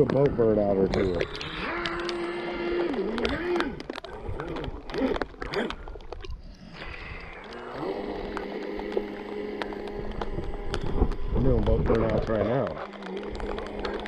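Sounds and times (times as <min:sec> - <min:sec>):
scattered clicks: 0:00.0 - 0:14.0
electric boat motor whine: 0:01.6 - 0:03.8, 0:06.8 - 0:14.0.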